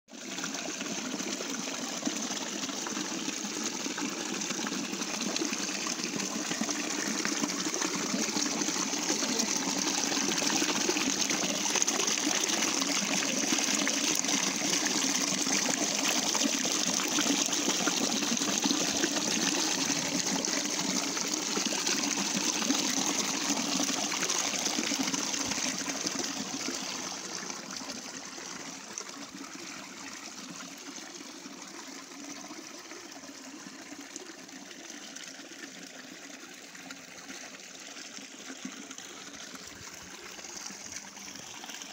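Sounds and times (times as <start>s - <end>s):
stream water splashing over rocks: 0.1s - 41.9s.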